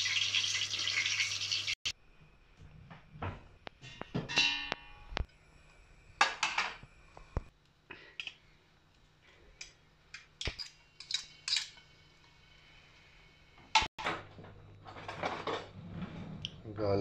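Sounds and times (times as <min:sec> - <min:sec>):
kitchenware clinking and clattering: 0:06.2 - 0:06.8, 0:10.2 - 0:12.4, 0:13.7 - 0:15.8.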